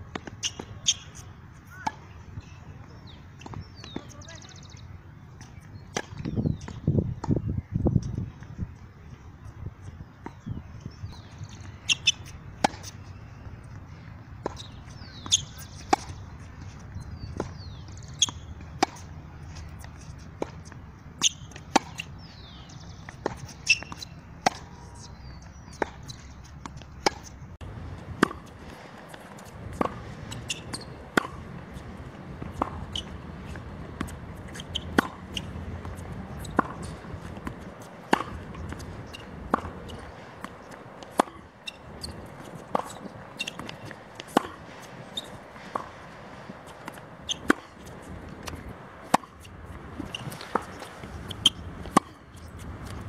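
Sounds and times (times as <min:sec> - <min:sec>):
tennis ball bouncing: 0:05.4 - 0:07.4, 0:11.1 - 0:13.0, 0:14.4 - 0:53.0
rackets striking tennis ball: 0:26.6 - 0:53.0.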